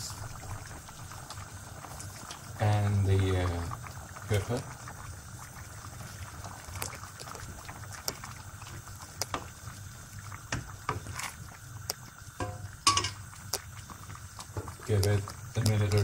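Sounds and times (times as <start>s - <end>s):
soup sloshing and bubbling: 0.0s - 15.7s
spoon knocking on metal pot: 12.4s - 13.2s.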